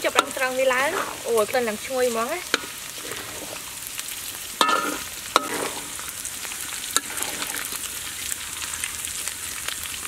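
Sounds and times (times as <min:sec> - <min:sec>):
vegetables sizzling in hot oil: 0:00.0 - 0:10.0
metal spatula clanking on wok: 0:04.6 - 0:05.8.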